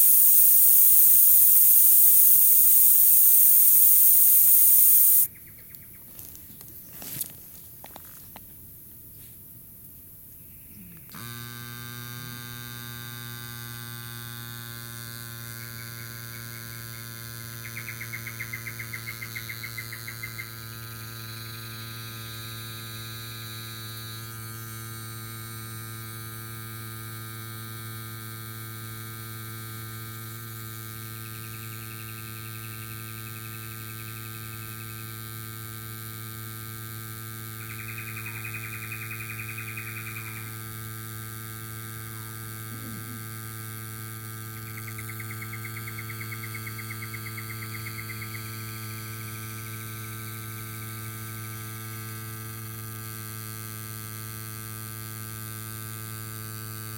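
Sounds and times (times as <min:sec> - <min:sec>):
electric tyre pump humming: 0:00.0 - 0:05.3, 0:11.0 - 0:56.9
bird trilling: 0:00.0 - 0:06.0, 0:17.6 - 0:20.6, 0:37.6 - 0:40.5.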